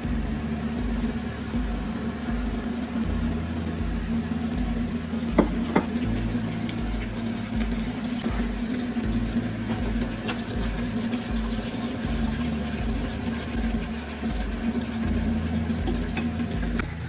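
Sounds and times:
chicken deep-frying in oil: 0.0 - 17.0.

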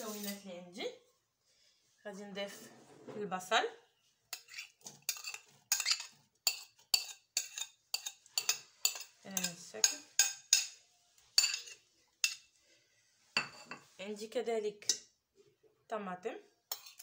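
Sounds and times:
metal spoon scraping ceramic bowl: 0.0 - 0.4, 4.3 - 10.8, 11.4 - 12.5, 13.4 - 13.9, 16.7 - 17.0.

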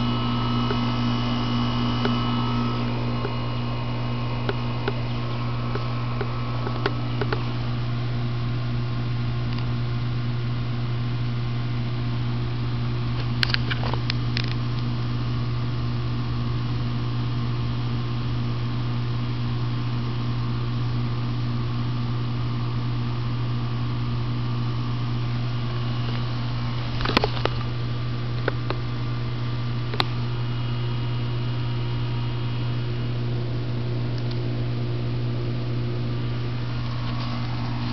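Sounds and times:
air conditioner humming: 0.0 - 37.9.

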